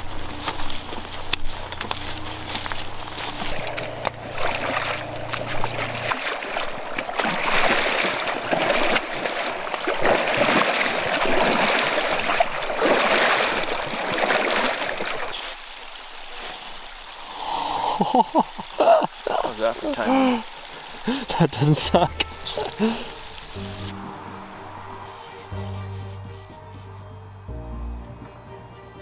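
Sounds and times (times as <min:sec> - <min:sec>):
river water rushing: 0:00.0 - 0:26.3.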